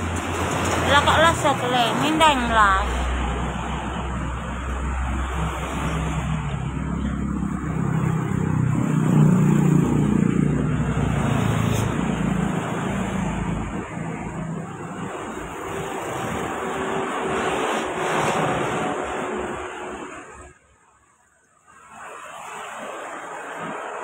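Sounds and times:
vehicle engine passing by: 0:02.9 - 0:20.5.

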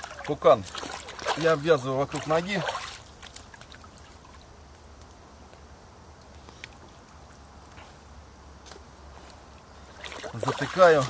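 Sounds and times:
murmur of river water: 0:00.0 - 0:04.6, 0:09.7 - 0:11.0.

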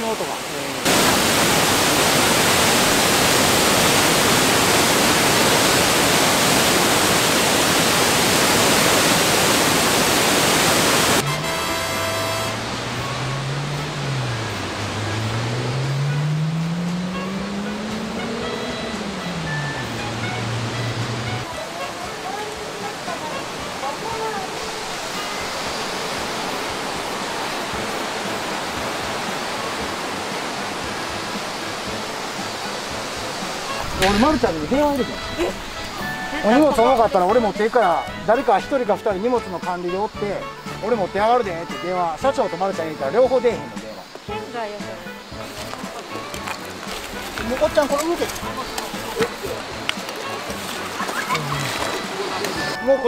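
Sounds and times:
waterfall rushing: 0:00.0 - 0:53.0
background music: 0:11.2 - 0:53.0.

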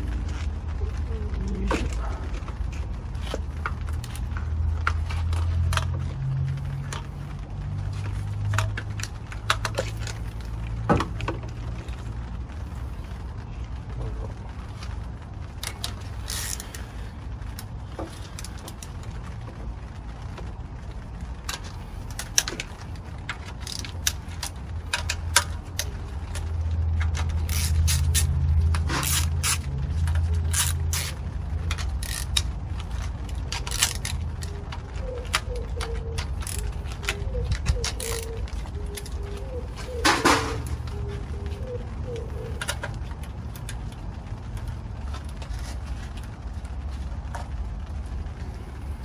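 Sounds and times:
ratchet clicking: 0:15.6 - 0:16.8, 0:23.3 - 0:34.5, 0:36.2 - 0:38.4.

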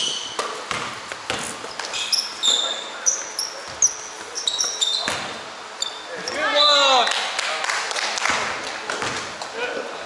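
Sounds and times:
basketball bouncing: 0:00.0 - 0:02.0, 0:05.0 - 0:05.4, 0:08.3 - 0:09.4
shoes squeaking on hardwood court: 0:00.0 - 0:06.7.

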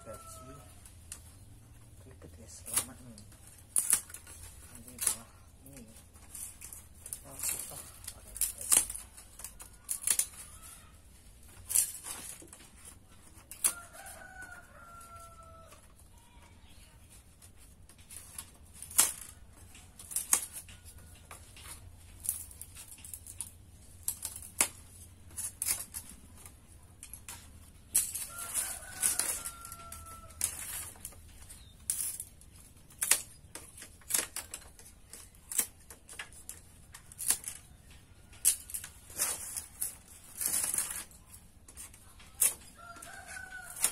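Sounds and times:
rooster crowing: 0:00.0 - 0:00.7, 0:13.7 - 0:15.8, 0:28.2 - 0:30.7, 0:42.7 - 0:43.9
bamboo clicks and knocks: 0:00.1 - 0:43.9.

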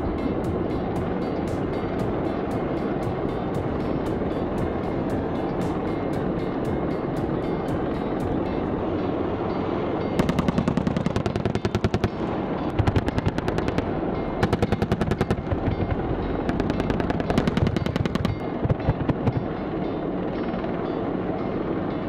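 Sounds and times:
steady low rumble: 0:00.0 - 0:22.0
chain gun firing bursts: 0:10.2 - 0:12.2.

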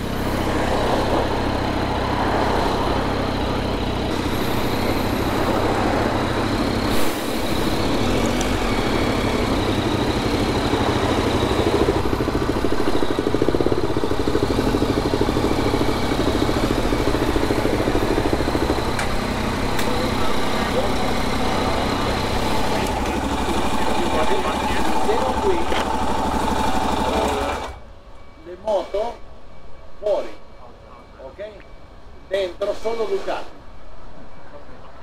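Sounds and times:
motorcycle engine running: 0:00.0 - 0:27.8.

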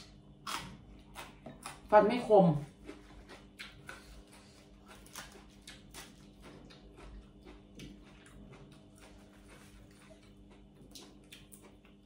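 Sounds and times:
lettuce leaves tearing: 0:03.6 - 0:06.3.

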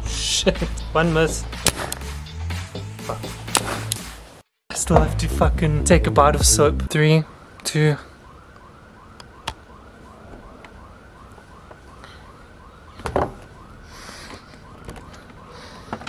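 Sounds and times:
warbling siren-like tone: 0:04.8 - 0:16.0.

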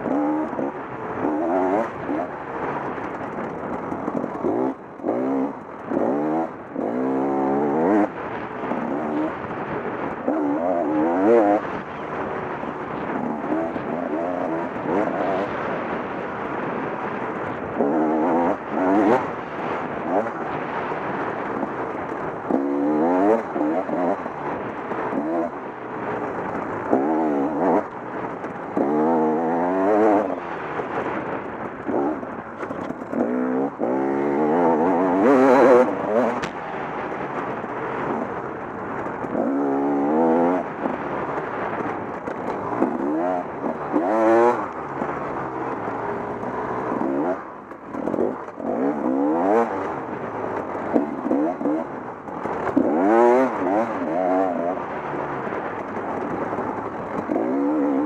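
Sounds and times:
dirt bike engine revving: 0:00.0 - 0:16.6, 0:17.6 - 0:20.8, 0:22.4 - 0:25.9, 0:26.9 - 0:28.0, 0:28.7 - 0:30.7, 0:31.8 - 0:37.1, 0:39.2 - 0:41.1, 0:42.5 - 0:55.1, 0:57.1 - 0:58.0.

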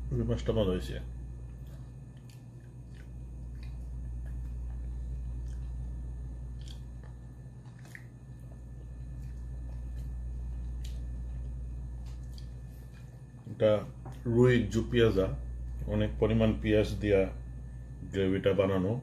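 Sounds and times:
steady low hum: 0:00.0 - 0:19.0
person eating with fingers: 0:01.5 - 0:13.2.

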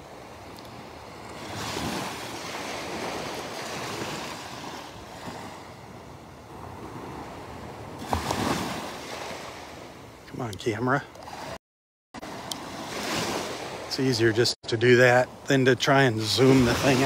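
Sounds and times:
wind buffeting microphone: 0:00.0 - 0:10.2
small waves washing onto beach: 0:00.0 - 0:11.6, 0:12.2 - 0:17.0.

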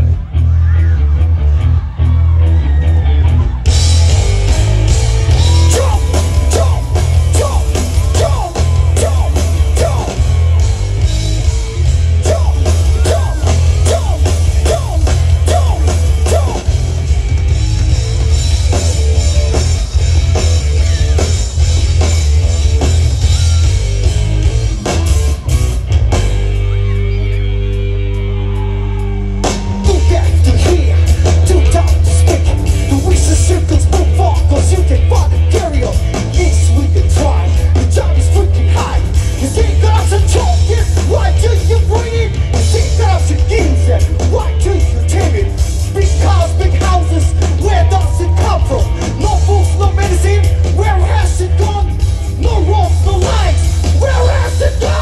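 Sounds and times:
rock band playing live: 0:00.0 - 0:55.0
person singing: 0:05.3 - 0:10.3, 0:28.4 - 0:55.0.

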